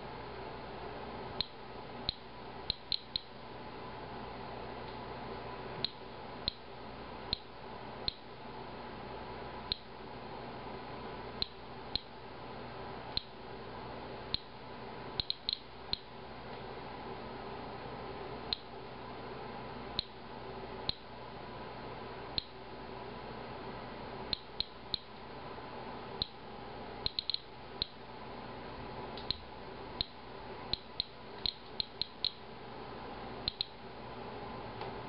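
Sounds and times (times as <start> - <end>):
steady background hiss: 0.0 - 35.0
geiger counter clicking: 1.4 - 3.3, 5.8 - 6.6, 9.7 - 9.9, 11.4 - 12.1, 13.2 - 13.4, 14.3 - 14.5, 15.2 - 16.1, 20.0 - 20.2, 24.3 - 25.1, 27.0 - 28.0, 30.0 - 32.4, 33.4 - 33.8.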